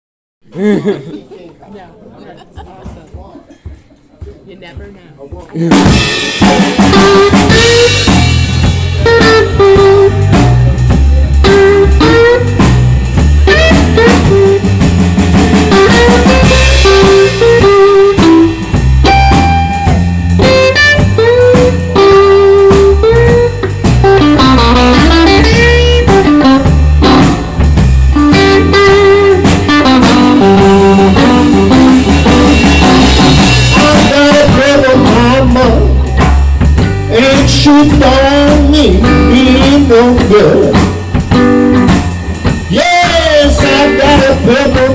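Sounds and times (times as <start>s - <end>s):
electric blues band playing: 2.5s - 44.9s
lead electric guitar blues licks: 5.7s - 44.9s
person singing: 33.6s - 36.4s, 37.1s - 41.0s, 42.7s - 44.9s.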